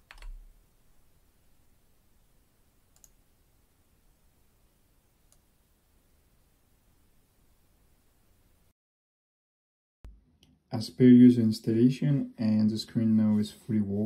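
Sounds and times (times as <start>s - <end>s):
computer mouse clicks: 0.0s - 0.4s, 2.9s - 3.2s.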